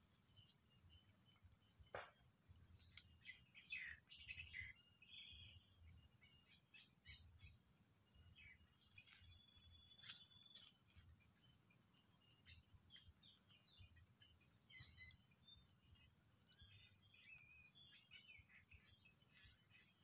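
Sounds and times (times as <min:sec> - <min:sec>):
steady high-pitched whine: 0:00.0 - 0:20.0.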